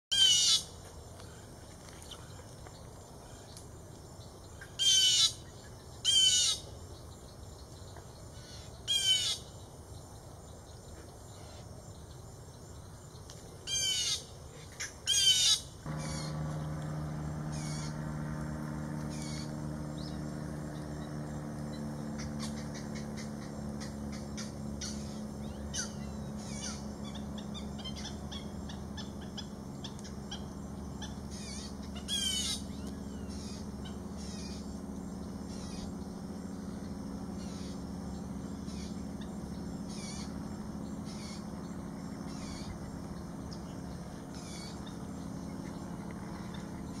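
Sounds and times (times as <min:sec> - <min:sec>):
hawk calling: 0:15.2 - 0:21.4
steady low drone: 0:15.8 - 0:47.0.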